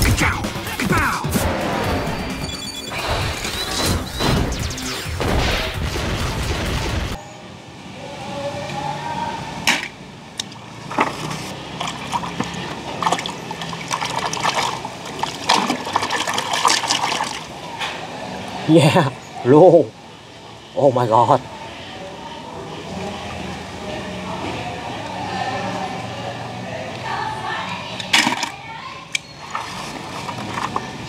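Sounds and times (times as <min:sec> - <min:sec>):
music: 0:00.0 - 0:05.0
hand splashing water in tub: 0:10.9 - 0:17.5.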